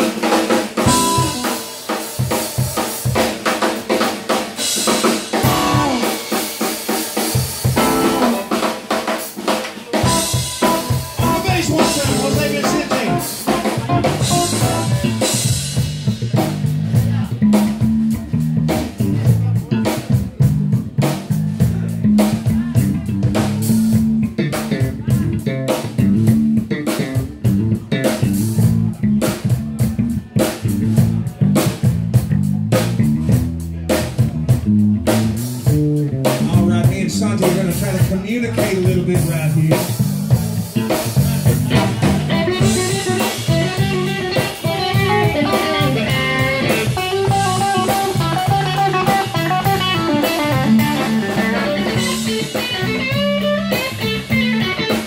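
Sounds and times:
blues band playing: 0:00.0 - 0:55.0
lead guitar bending notes: 0:00.8 - 0:01.9, 0:05.4 - 0:06.5, 0:07.6 - 0:08.8, 0:10.0 - 0:16.3, 0:41.4 - 0:55.0.

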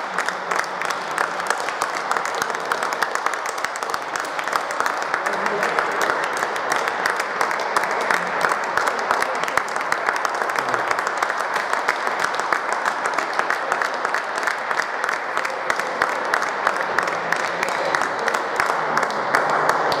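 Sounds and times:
hands clapping: 0:00.0 - 0:20.0.

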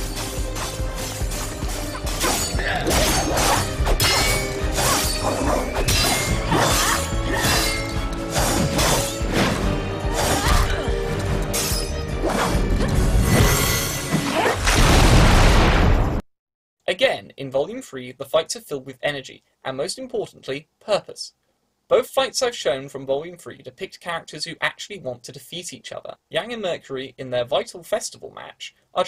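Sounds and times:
action music: 0:00.0 - 0:14.3
swords clashing and smashing: 0:00.5 - 0:10.9, 0:11.5 - 0:12.6
loud crashing burst: 0:14.6 - 0:16.2.

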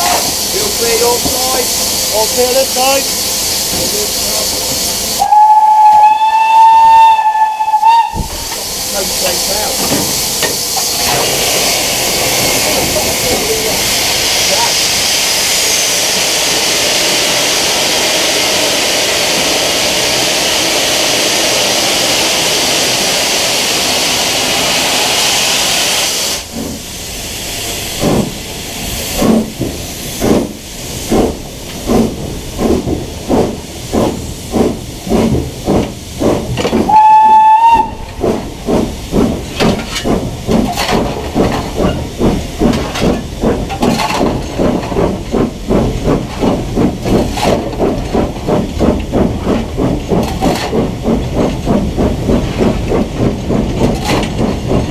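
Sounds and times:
steam hissing: 0:00.0 - 0:54.9
steam whistle blast: 0:05.2 - 0:08.3, 0:36.9 - 0:38.0
locomotive exhaust beats: 0:26.4 - 0:54.9.

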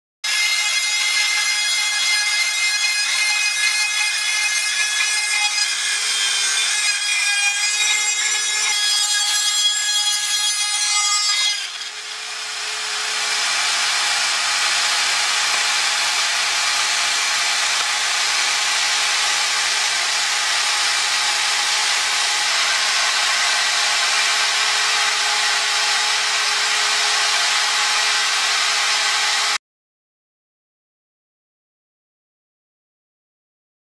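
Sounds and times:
spindle cutting wood: 0:11.1 - 0:29.6
steady machine whine: 0:11.9 - 0:29.6.

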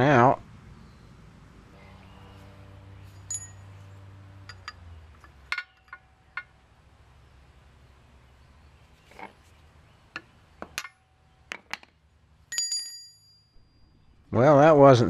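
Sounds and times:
low steady hum: 0:00.0 - 0:15.0
chisel clinking on metal pipe: 0:03.2 - 0:03.7, 0:04.4 - 0:06.5, 0:12.5 - 0:13.6.

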